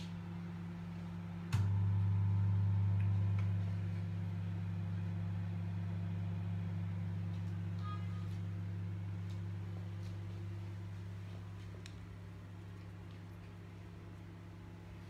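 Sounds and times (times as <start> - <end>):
microwave oven humming: 0.0 - 15.0.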